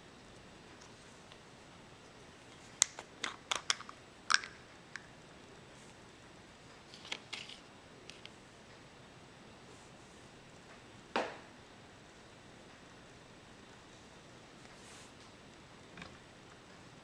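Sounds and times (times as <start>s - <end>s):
screw cap clicking on jar: 2.8s - 5.1s.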